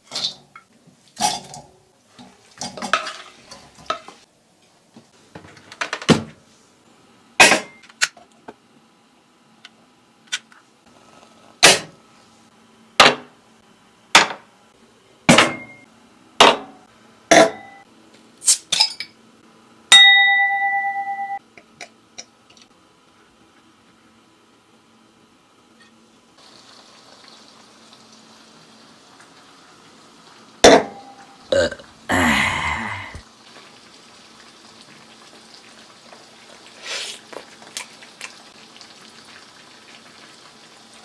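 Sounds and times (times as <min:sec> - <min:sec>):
ringing ding: 0:15.5 - 0:15.8, 0:17.5 - 0:17.8, 0:19.9 - 0:21.4.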